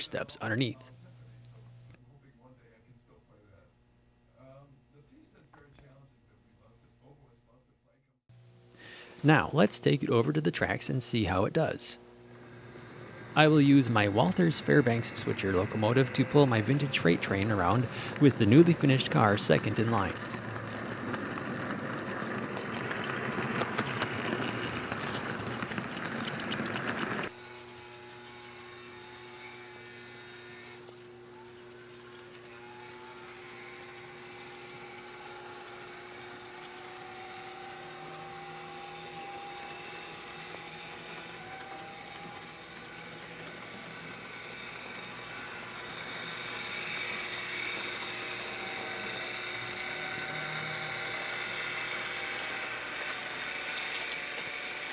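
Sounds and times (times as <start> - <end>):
small electric motor whining: 12.2 - 54.9
metal wheels clicking over track: 14.2 - 27.3.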